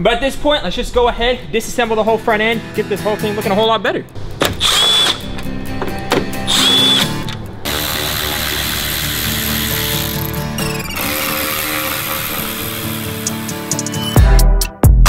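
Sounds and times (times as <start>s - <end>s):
power screwdriver whirring: 4.5s - 5.3s, 6.5s - 13.6s.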